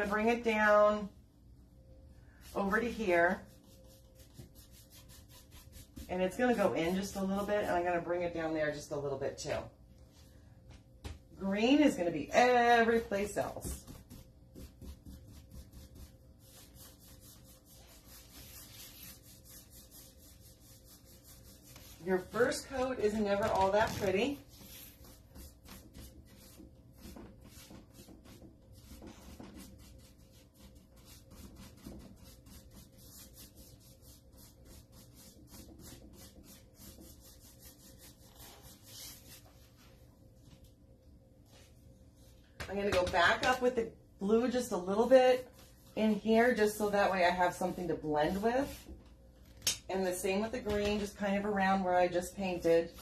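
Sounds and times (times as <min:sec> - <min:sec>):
paintbrush scrubbing on wood: 0:02.4 - 0:08.0, 0:11.8 - 0:40.0, 0:44.4 - 0:49.0.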